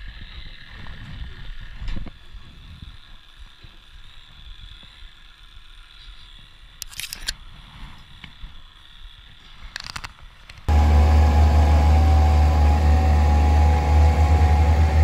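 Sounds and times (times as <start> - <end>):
sharp metallic clicks: 6.8 - 7.4.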